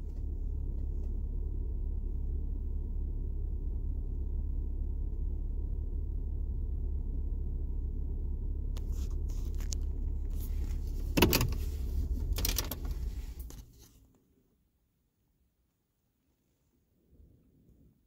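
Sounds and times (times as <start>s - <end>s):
vehicle engine idling: 0.0s - 14.0s.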